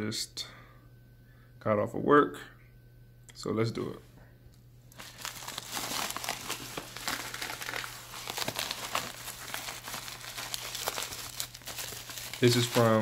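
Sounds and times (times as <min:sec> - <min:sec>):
plastic bubble mailer crinkling: 0:04.9 - 0:13.0.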